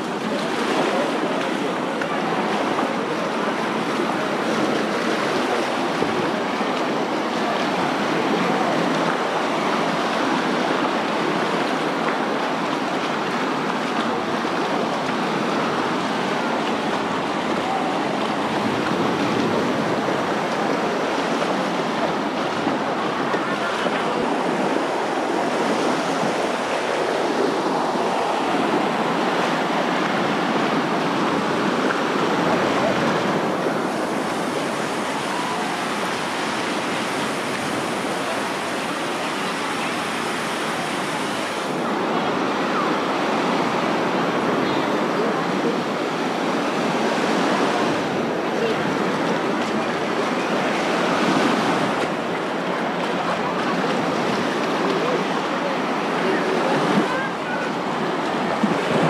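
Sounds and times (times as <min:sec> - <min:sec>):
small waves washing on sand: 0:00.0 - 0:59.0.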